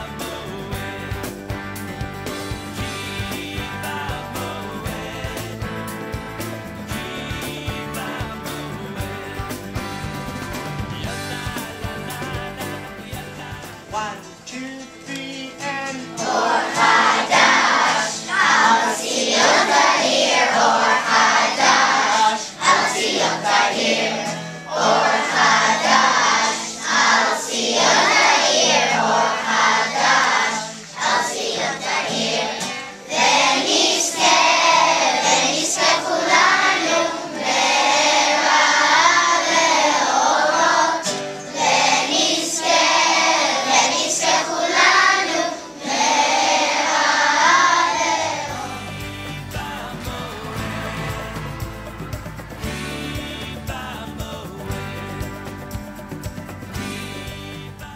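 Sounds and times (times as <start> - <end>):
man singing: 0.0 - 1.8, 2.7 - 16.8, 48.5 - 52.0, 52.6 - 55.8, 56.8 - 57.9
acoustic guitar: 0.0 - 57.9
children singing together: 15.1 - 55.6.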